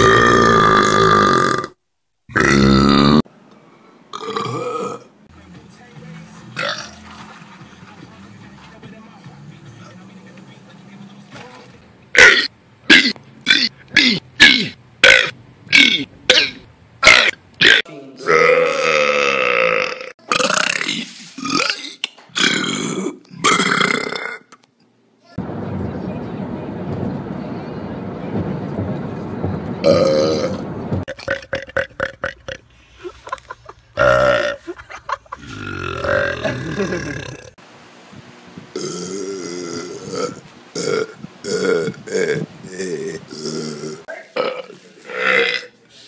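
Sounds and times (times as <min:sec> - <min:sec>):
person belching: 0:00.0 - 0:03.3, 0:04.1 - 0:05.1, 0:12.2 - 0:24.5, 0:29.8 - 0:32.6, 0:34.0 - 0:34.6, 0:35.4 - 0:37.6, 0:38.7 - 0:45.8
person burping loudly: 0:00.0 - 0:03.3, 0:04.1 - 0:05.1, 0:06.6 - 0:07.0, 0:12.2 - 0:24.5, 0:29.8 - 0:32.6, 0:34.0 - 0:34.7, 0:35.4 - 0:37.6, 0:38.7 - 0:45.8.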